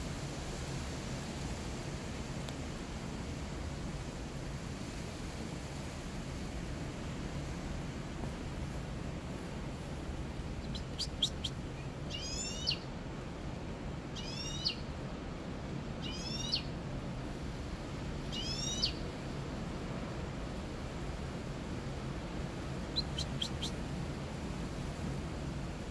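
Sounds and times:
low background noise: 0:00.0 - 0:25.9
songbird singing: 0:10.4 - 0:12.9, 0:14.1 - 0:15.0, 0:16.0 - 0:16.8, 0:18.3 - 0:19.1, 0:22.9 - 0:23.9.

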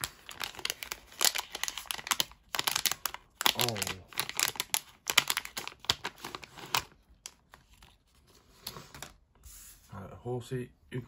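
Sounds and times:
foil pouch crinkling and tearing: 0:00.0 - 0:08.0.

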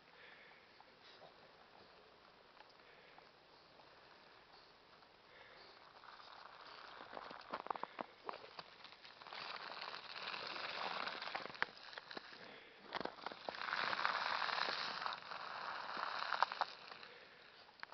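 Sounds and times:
sharp crackles: 0:02.5 - 0:17.9
sled dragged through snow: 0:05.5 - 0:17.7.

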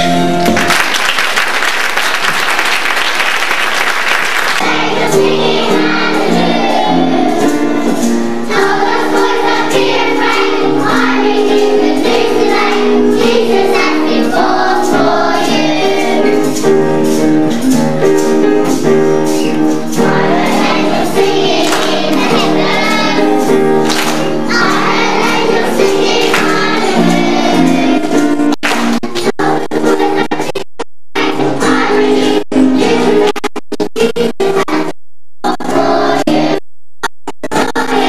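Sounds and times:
instrumental accompaniment: 0:00.0 - 0:01.4, 0:03.7 - 0:30.6
children singing: 0:04.3 - 0:18.6, 0:19.2 - 0:28.5, 0:29.4 - 0:30.5, 0:31.2 - 0:33.3, 0:35.5 - 0:36.6, 0:37.6 - 0:38.0.

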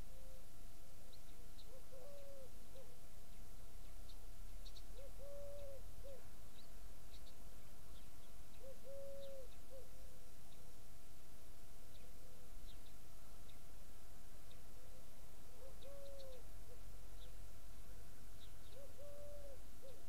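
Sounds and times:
small birds chirping: 0:01.0 - 0:10.7, 0:11.8 - 0:20.0
dove cooing: 0:01.6 - 0:02.9, 0:05.0 - 0:06.3, 0:08.6 - 0:10.1, 0:15.6 - 0:16.8, 0:18.6 - 0:20.0.

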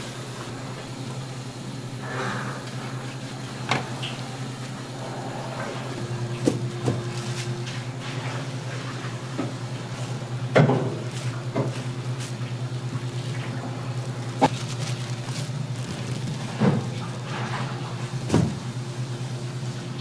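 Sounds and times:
electrical hum: 0:00.0 - 0:20.0
plastic rustling: 0:06.4 - 0:07.9, 0:11.1 - 0:18.5.

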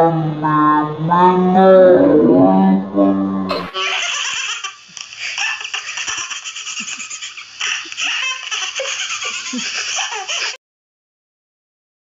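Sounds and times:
baby laughing: 0:03.5 - 0:10.6.

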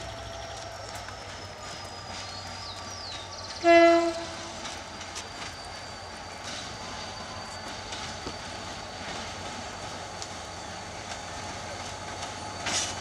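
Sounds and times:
locomotive air horn blast: 0:03.6 - 0:04.6.

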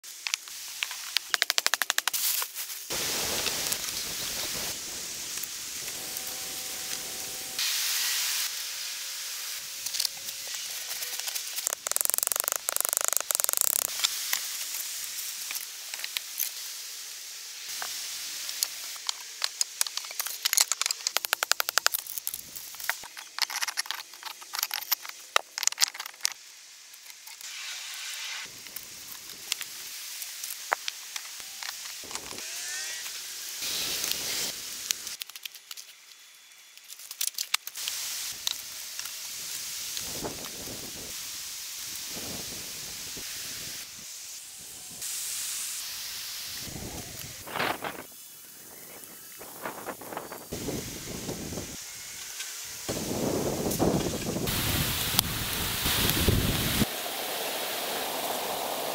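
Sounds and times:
twigs rustling and scraping: 0:09.8 - 0:16.6, 0:17.7 - 0:26.4, 0:35.1 - 0:39.2
sticks clicking and knocking: 0:11.5 - 0:13.9, 0:19.5 - 0:22.2.

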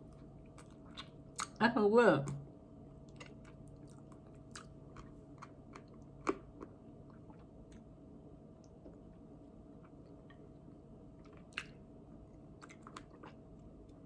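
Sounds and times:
wet mouth clicks and chewing: 0:00.0 - 0:01.6, 0:03.0 - 0:07.9, 0:11.2 - 0:11.8, 0:12.5 - 0:14.0.

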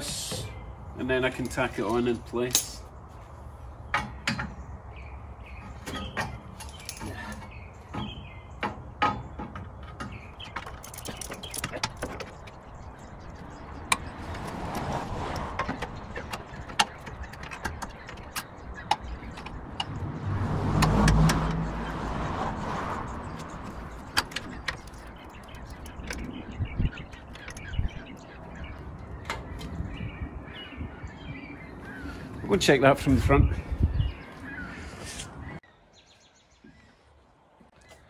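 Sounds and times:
metal clamps clinking: 0:05.8 - 0:07.5
car passing: 0:13.7 - 0:16.5, 0:19.4 - 0:25.8.

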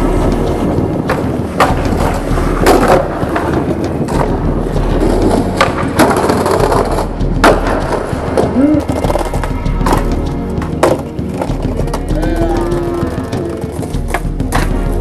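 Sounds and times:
skateboard wheels rumbling on tiles: 0:00.0 - 0:15.0
skateboard sharp clacks: 0:00.1 - 0:12.0.

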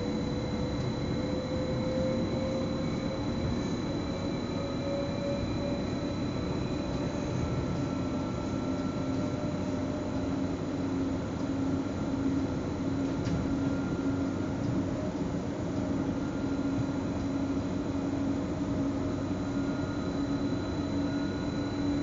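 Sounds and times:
electric train rolling rumble: 0:00.0 - 0:22.0.

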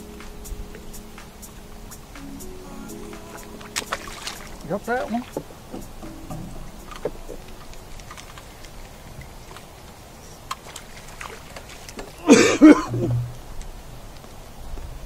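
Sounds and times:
fish splashing at the surface: 0:10.5 - 0:12.2.

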